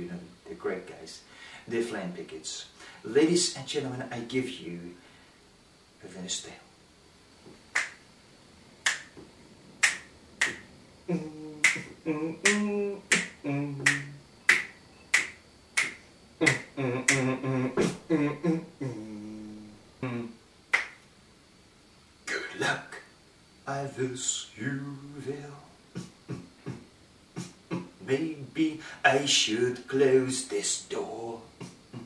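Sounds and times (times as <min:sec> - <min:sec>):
finger snaps: 0:07.5 - 0:08.0, 0:08.8 - 0:10.7, 0:11.6 - 0:17.9, 0:20.7 - 0:21.1
man singing wordless notes: 0:11.1 - 0:14.6, 0:16.4 - 0:20.4, 0:23.7 - 0:26.8, 0:27.4 - 0:32.0.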